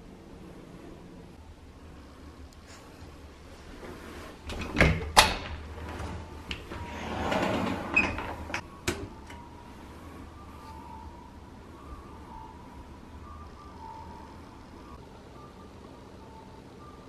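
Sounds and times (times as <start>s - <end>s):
folding door panels sliding: 3.6s - 9.2s.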